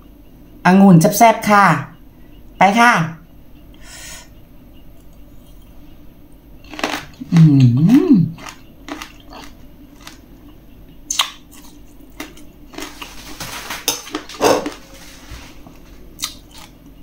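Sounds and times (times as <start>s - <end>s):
person chewing grape: 5.0s - 5.9s, 6.6s - 13.4s, 14.0s - 15.0s, 16.1s - 17.0s
wet mouth clicks and smacks: 11.1s - 11.4s.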